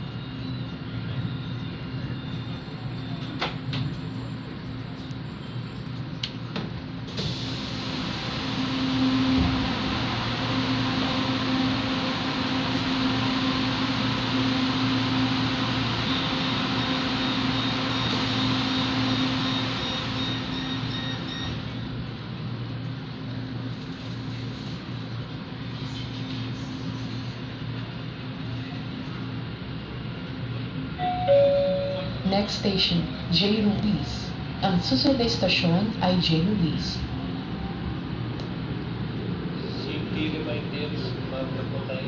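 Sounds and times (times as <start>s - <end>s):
train wheels and motors rumbling: 0.0s - 42.0s.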